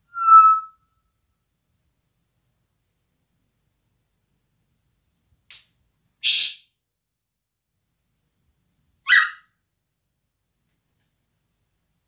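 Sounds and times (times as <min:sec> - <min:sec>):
parrot squawk: 0:06.2 - 0:06.6, 0:09.1 - 0:09.5
parrot rasping calls: 0:09.1 - 0:09.5.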